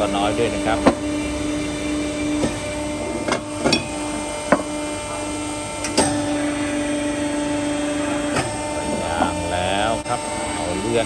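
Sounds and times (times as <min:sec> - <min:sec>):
machinery hum: 0:00.0 - 0:11.0.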